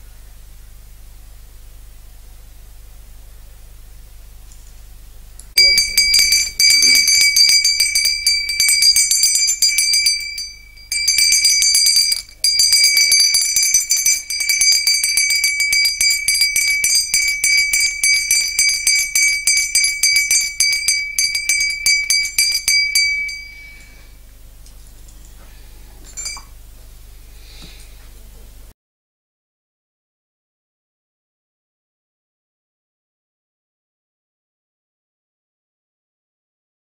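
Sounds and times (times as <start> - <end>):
hand bell ringing rapidly: 5.6 - 24.0, 26.2 - 26.5.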